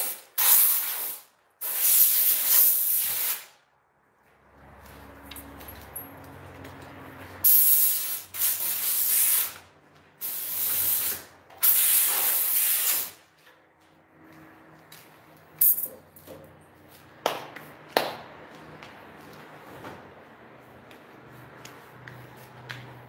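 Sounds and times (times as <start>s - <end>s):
air blow gun hissing: 0.0s - 3.6s, 7.4s - 9.6s, 10.2s - 13.2s.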